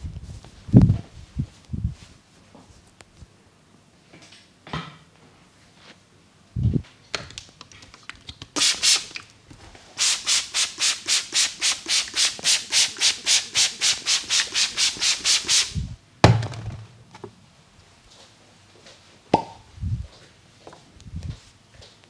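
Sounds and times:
hands rubbing hair: 7.6s - 9.3s, 10.0s - 15.8s.

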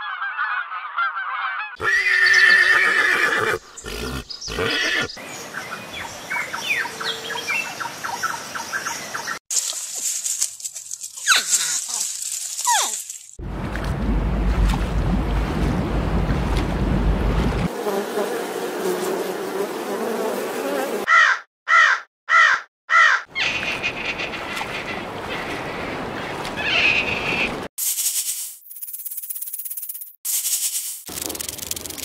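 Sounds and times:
crow cawing: 21.1s - 23.6s.

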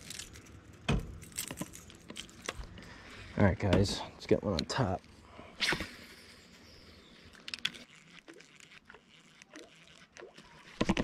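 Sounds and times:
fishing reel clicking: 6.6s - 11.0s.

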